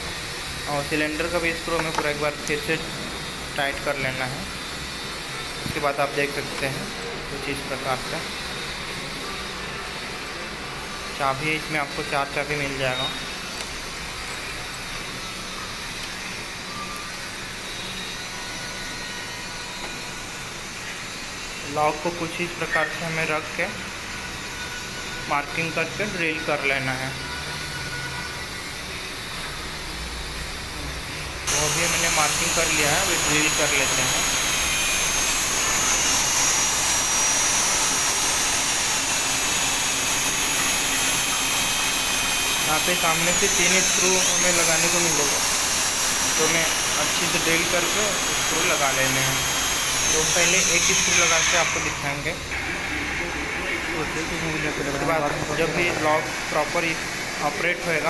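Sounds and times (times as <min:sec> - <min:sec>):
electric drill whining: 0:00.1 - 0:09.6, 0:31.5 - 0:58.0.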